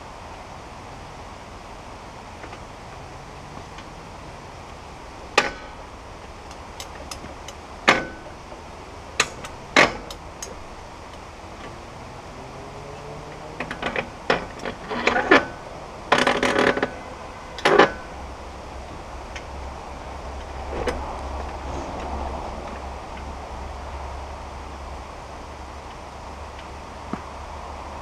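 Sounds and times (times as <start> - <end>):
metal clanks and knocks: 9.2 - 10.6.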